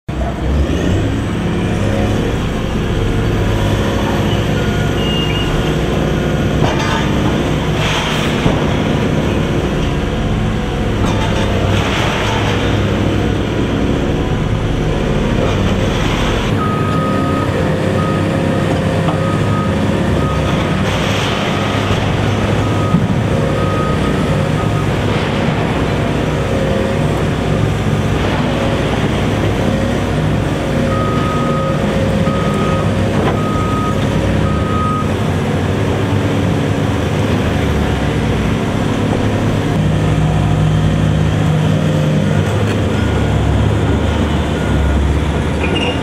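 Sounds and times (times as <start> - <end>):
excavator diesel engines under load: 0.1 - 46.0.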